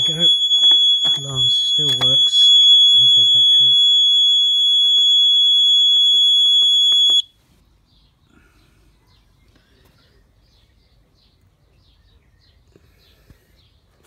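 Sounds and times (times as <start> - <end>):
high-pitched alarm tone: 0.0 - 7.3.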